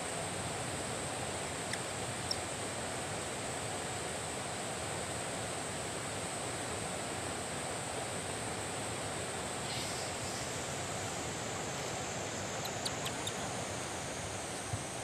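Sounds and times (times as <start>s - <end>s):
faint small clicks: 12.6s - 13.4s.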